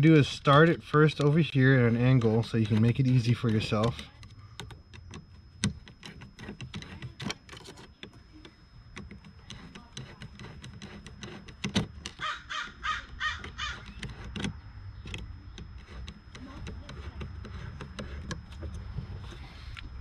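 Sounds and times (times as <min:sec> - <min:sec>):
screwdriver on hose clamp: 0:01.2 - 0:08.2, 0:09.0 - 0:12.3, 0:13.1 - 0:18.5.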